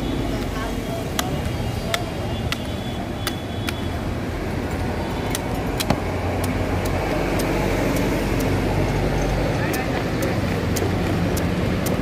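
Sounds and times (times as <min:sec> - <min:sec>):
road traffic rumble: 0:00.0 - 0:12.0
machete chopping fruit: 0:05.3 - 0:08.6.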